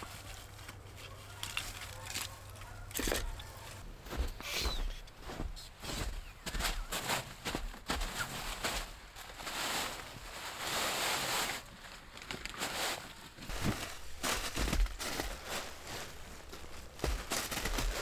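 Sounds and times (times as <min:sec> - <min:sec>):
fabric and nylon rustling: 0:05.2 - 0:18.0.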